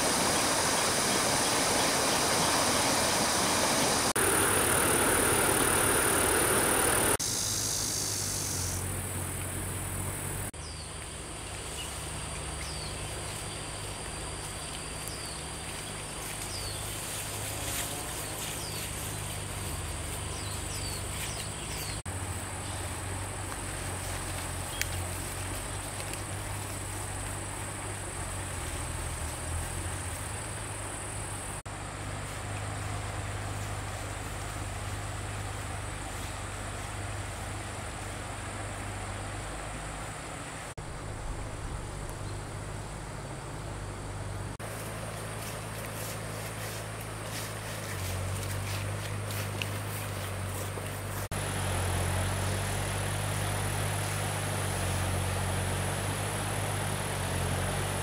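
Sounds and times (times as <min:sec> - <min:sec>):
high insect buzz: 0:00.0 - 0:58.0
water pump engine humming: 0:00.0 - 0:58.0.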